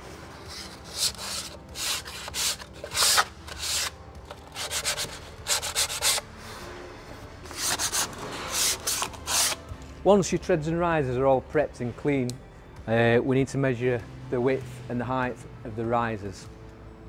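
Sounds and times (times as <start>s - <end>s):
hand sanding wood: 0.5s - 3.9s, 4.5s - 6.2s, 7.5s - 9.6s.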